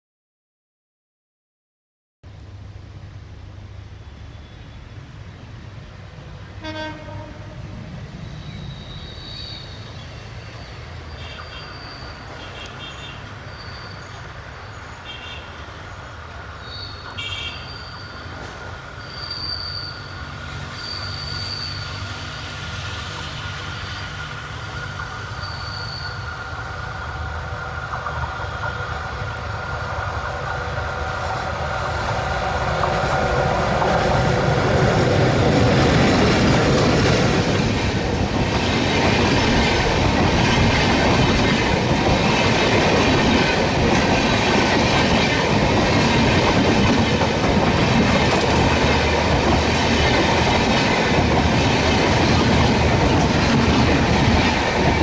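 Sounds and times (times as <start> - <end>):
diesel locomotive engine drone: 2.3 - 55.0
train wheel squeals: 4.0 - 5.0, 7.8 - 29.7.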